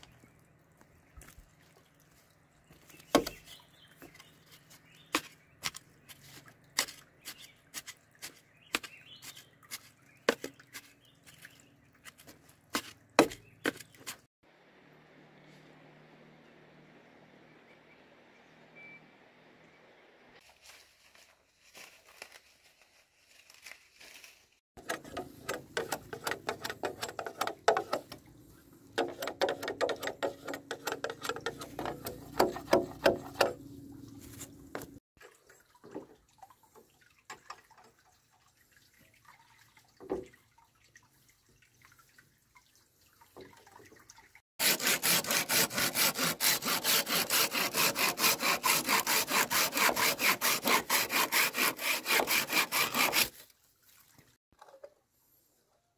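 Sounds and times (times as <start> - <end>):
hand saw cutting bamboo: 24.8 - 28.2, 29.0 - 33.6, 34.3 - 35.0, 44.6 - 53.5
knocks and scraping: 24.8 - 35.0, 44.6 - 53.4.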